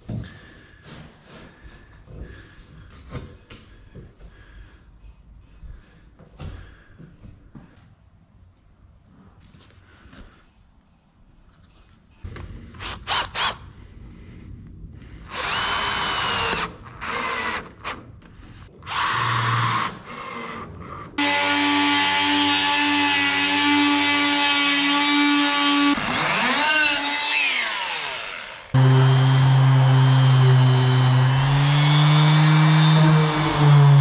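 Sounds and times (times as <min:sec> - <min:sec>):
cordless drill driving screws: 0:15.3 - 0:18.0, 0:18.8 - 0:29.3.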